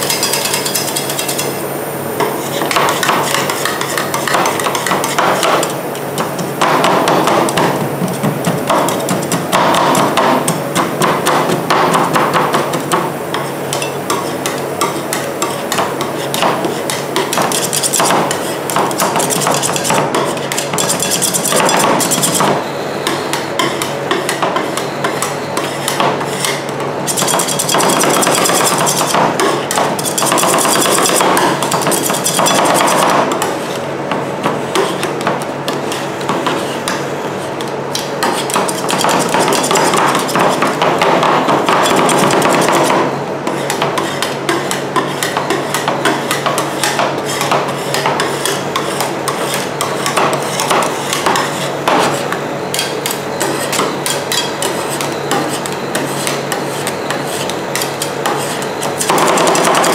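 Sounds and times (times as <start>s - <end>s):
metal spatulas chopping on steel: 0.0s - 1.5s, 13.7s - 33.5s, 43.6s - 59.9s
spatulas scraping: 15.1s - 22.6s, 43.5s - 59.9s.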